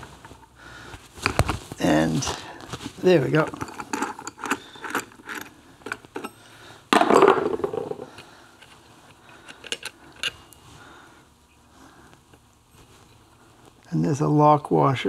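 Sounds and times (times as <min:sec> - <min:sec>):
metal tools clicking and clinking: 0:03.3 - 0:06.4.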